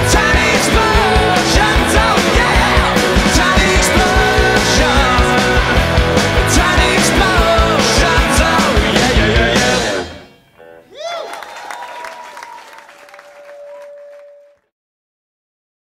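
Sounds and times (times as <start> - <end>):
live rock band playing: 0.0 - 11.0.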